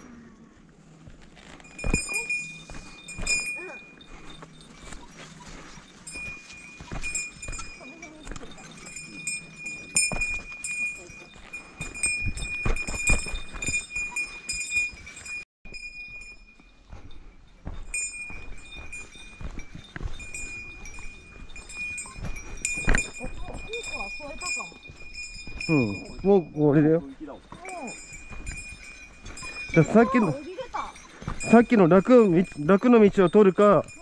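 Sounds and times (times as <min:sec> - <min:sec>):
footsteps on dirt trail: 0:00.8 - 0:34.0
small bell jingling: 0:01.4 - 0:34.0.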